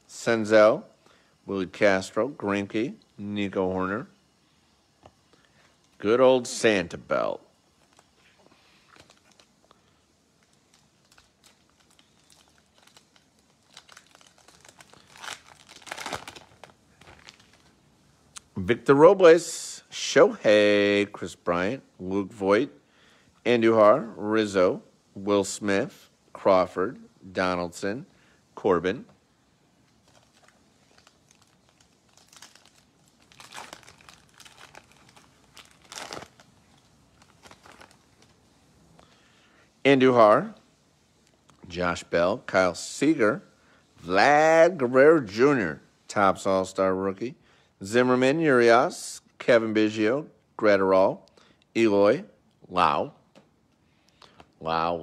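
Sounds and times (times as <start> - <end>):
wrapper crinkling: 7.1 - 17.8, 29.8 - 39.1
card pack wrapper tearing: 10.7 - 17.7, 30.0 - 38.4.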